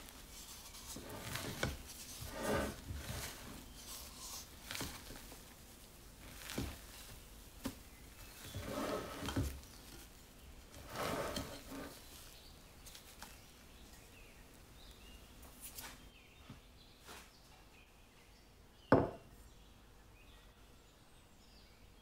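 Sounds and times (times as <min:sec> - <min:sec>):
spatula folding batter in bowl: 0:00.0 - 0:14.4.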